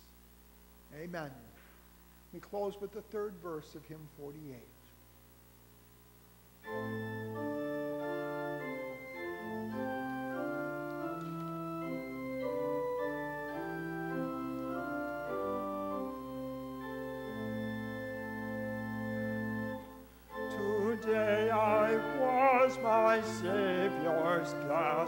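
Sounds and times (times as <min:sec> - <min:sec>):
church organ playing chords: 0:06.6 - 0:25.0.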